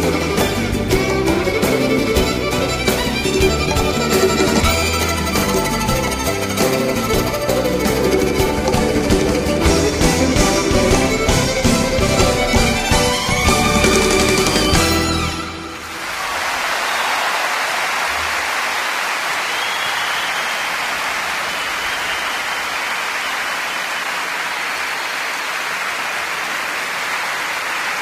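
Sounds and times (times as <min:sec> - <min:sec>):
music: 0:00.0 - 0:16.0
steady rushing noise: 0:01.9 - 0:14.8.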